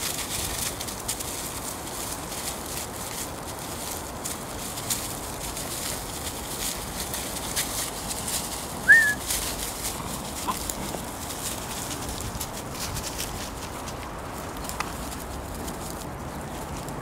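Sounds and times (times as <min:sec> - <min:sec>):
dry leaves rustling and crackling: 0:00.0 - 0:17.0
puppy yelping: 0:08.9 - 0:09.2.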